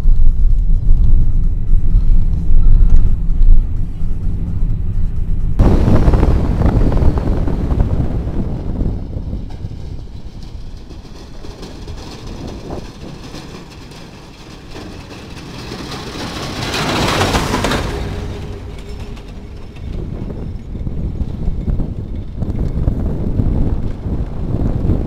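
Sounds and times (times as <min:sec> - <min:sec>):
car road and wind noise: 0:00.0 - 0:25.0
snowplow truck passing: 0:05.6 - 0:25.0.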